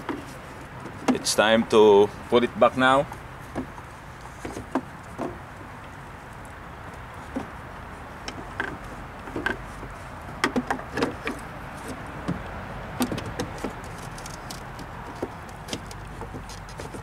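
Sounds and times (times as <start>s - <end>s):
hard plastic clicks and knocks: 10.4s - 11.4s, 12.2s - 17.0s.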